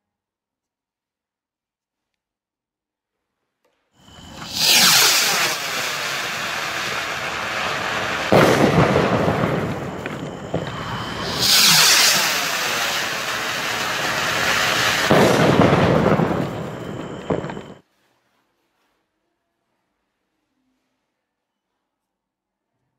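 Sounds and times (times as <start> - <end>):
firework crackles: 4.0 - 17.8
rocket burst bang with rumbling echo: 4.1 - 17.8
sky rocket launching hiss: 4.1 - 17.8.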